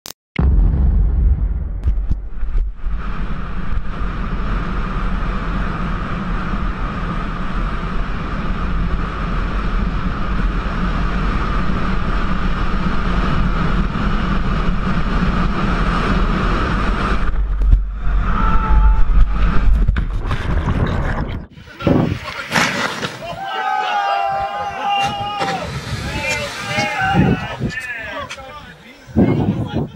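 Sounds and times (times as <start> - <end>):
steady high whine: 0.4 - 20.3
low rumble: 0.4 - 22.3
wind buffeting microphone: 1.4 - 22.3, 24.2 - 29.9.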